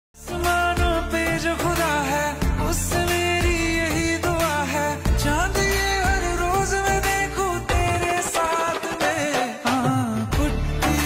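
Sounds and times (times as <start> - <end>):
heavy bass: 0.2 - 8.1, 10.4 - 11.0
person singing over beat: 0.2 - 11.0.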